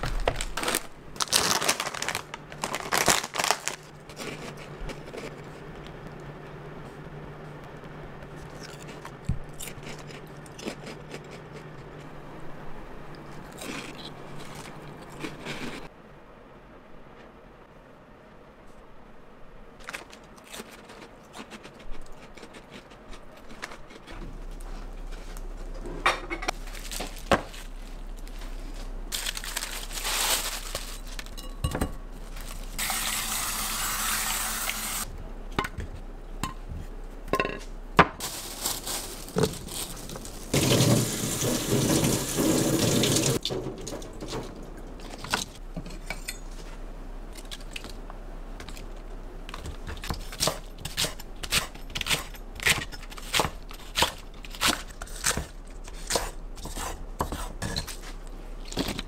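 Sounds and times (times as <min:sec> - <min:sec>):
dishes and utensils clinking: 0:31.0 - 0:32.0.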